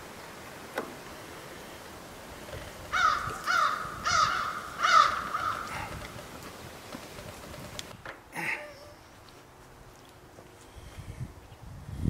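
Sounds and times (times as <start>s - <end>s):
crow cawing: 2.9s - 6.0s.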